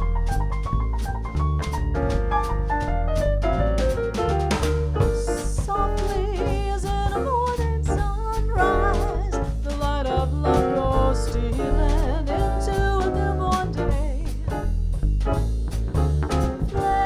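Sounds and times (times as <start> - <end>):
drum kit: 0.0 - 17.0
upright bass walking: 0.0 - 17.0
person singing: 5.1 - 14.4, 16.8 - 17.0.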